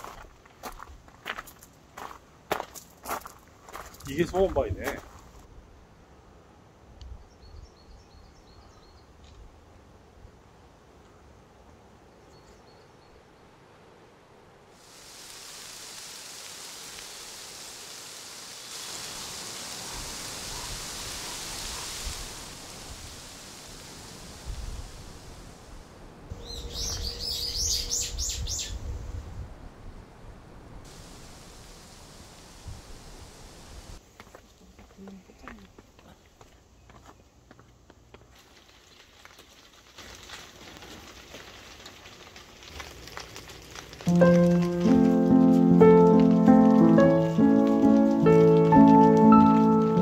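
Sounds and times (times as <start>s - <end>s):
wind rustling tree leaves: 0.0s - 34.2s, 38.5s - 50.0s
wind rumble on microphone: 24.3s - 30.9s
rustling crackling patter: 38.0s - 50.0s.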